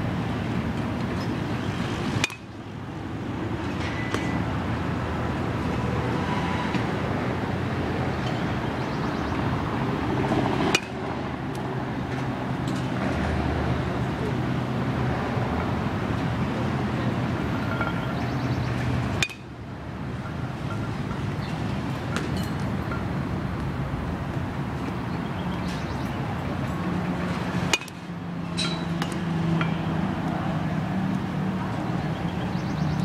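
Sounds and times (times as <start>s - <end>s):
bat striking baseballs: 2.0s - 2.6s, 3.7s - 4.5s, 10.5s - 11.0s, 17.6s - 19.6s, 21.9s - 23.1s, 27.2s - 29.9s.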